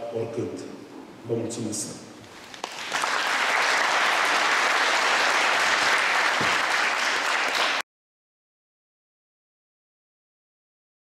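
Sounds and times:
audience applauding: 2.4s - 7.8s.

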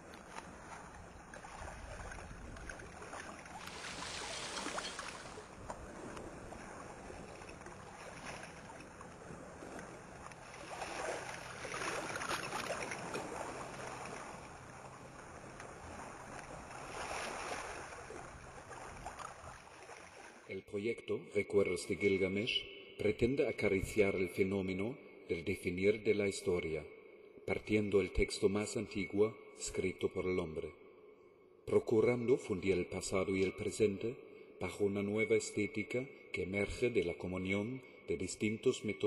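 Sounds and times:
rushing water: 0.0s - 20.5s.

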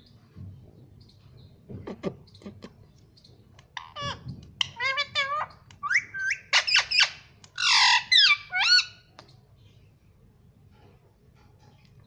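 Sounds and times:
parakeet harsh squawk: 3.8s - 9.0s
parakeet calls: 3.8s - 9.1s.

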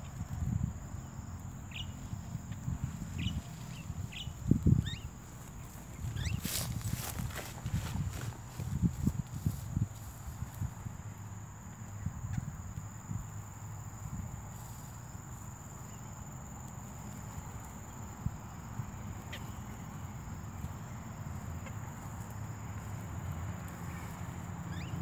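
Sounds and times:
insect drone: 0.0s - 25.0s
faint bird chirps: 1.6s - 6.8s, 24.7s - 25.0s.

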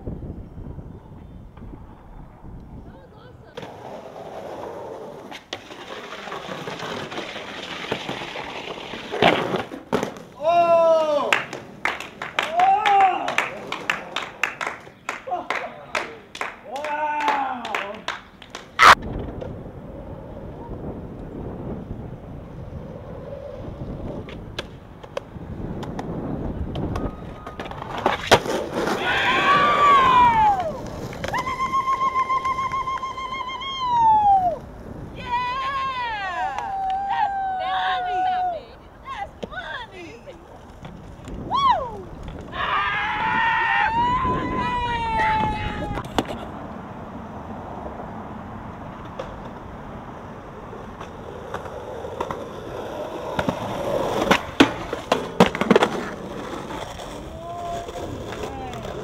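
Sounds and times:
skateboard wheels rolling on concrete: 0.0s - 59.0s
skateboard clacks: 3.5s - 19.6s, 24.0s - 34.8s, 45.1s - 46.6s, 48.7s - 59.0s.

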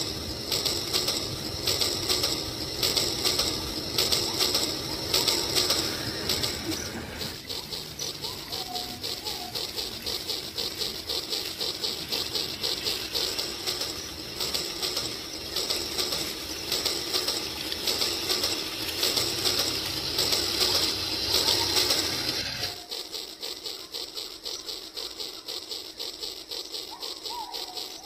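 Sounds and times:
toy train clattering on track: 0.0s - 28.0s.

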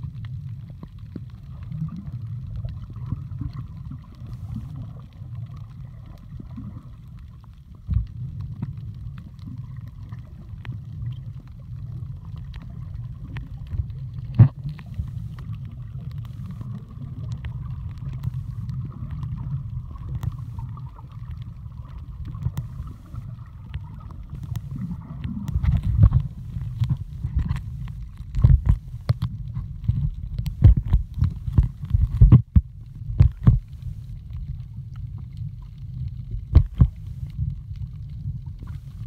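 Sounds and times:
faint steady hum: 0.0s - 39.0s
underwater rumble of moving water: 0.0s - 39.0s
small clicks: 11.4s - 38.0s.

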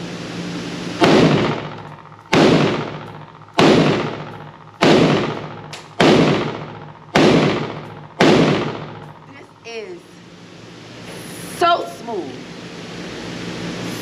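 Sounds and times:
gunshots echoing indoors: 1.0s - 9.2s.

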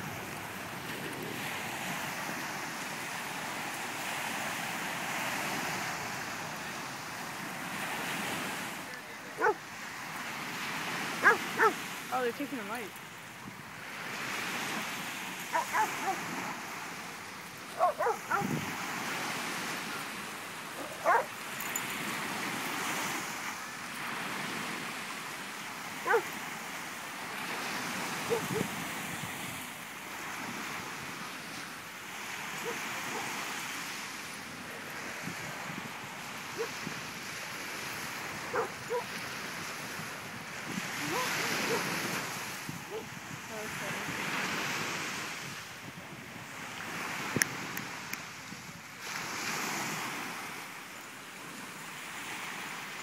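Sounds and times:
waves breaking on shore: 0.0s - 53.0s
dog barking: 9.4s - 9.6s, 11.2s - 11.8s, 15.5s - 16.3s, 17.8s - 18.6s, 20.8s - 21.4s, 26.0s - 26.3s, 28.3s - 28.7s, 32.6s - 33.3s, 36.6s - 36.8s, 38.5s - 39.1s, 41.0s - 41.9s, 42.9s - 43.1s.

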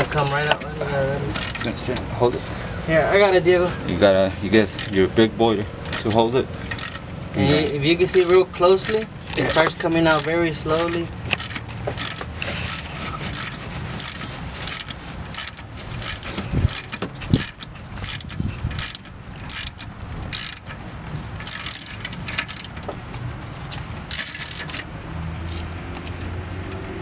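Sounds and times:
ratchet wrench clicking: 0.0s - 0.6s, 1.3s - 1.8s, 4.7s - 5.0s, 5.8s - 20.8s, 21.4s - 22.9s, 24.0s - 24.9s.

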